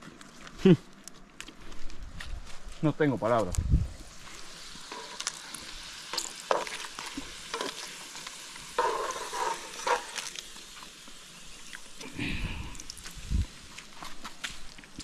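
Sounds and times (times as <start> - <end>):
tortillas sizzling in fat: 3.8 - 15.0
fat popping and crackling: 4.4 - 11.1.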